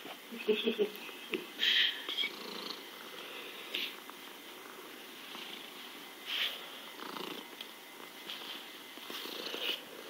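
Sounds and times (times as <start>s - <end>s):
cat purring: 2.1s - 10.0s.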